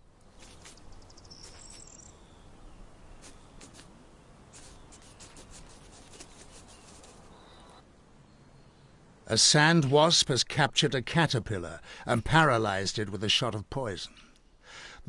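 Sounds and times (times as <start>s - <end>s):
sand grains scratching and ticking: 0.3s - 2.1s, 3.2s - 7.5s
high insect chirp: 0.7s - 2.2s.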